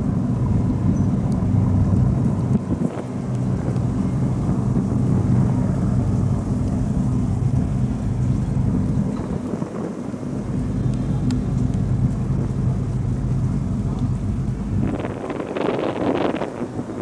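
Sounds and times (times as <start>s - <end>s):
ferry diesel engines droning: 0.0s - 17.0s
wind rumbling on microphone: 0.0s - 17.0s.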